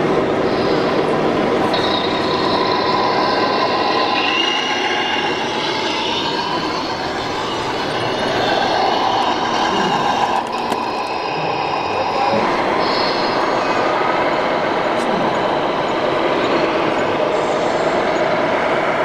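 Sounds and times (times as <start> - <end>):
busy hall noise: 0.0 - 19.0
model truck motor whine: 5.2 - 11.1.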